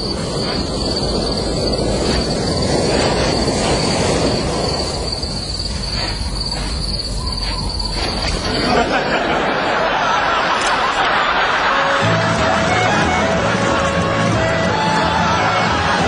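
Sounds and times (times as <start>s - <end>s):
high-pitched insect drone: 0.0s - 9.2s
outdoor noise: 0.0s - 16.0s.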